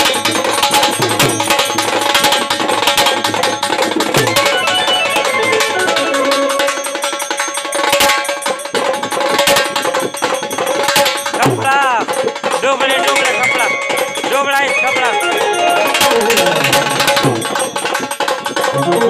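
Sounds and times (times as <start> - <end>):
drum struck in sharp strokes: 0.0 - 19.0
steady held tone: 0.4 - 9.3, 12.6 - 19.0.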